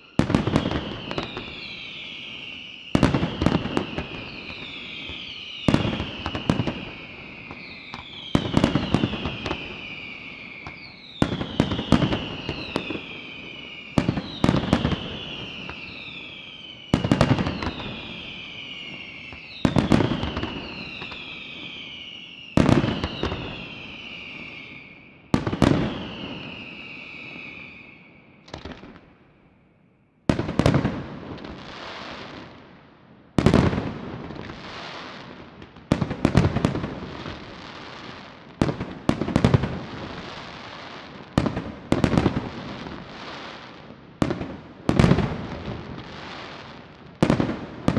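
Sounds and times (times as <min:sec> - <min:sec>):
firework crackle: 0:00.0 - 0:29.1, 0:33.4 - 0:47.9.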